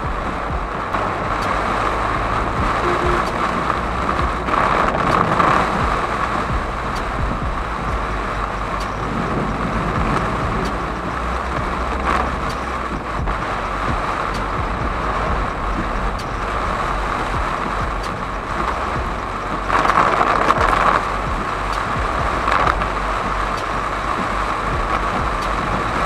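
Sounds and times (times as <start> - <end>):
heavy rain on car roof: 0.0 - 26.0
tyre hiss on wet road: 0.0 - 26.0
windscreen wipers sweeping: 0.0 - 26.0.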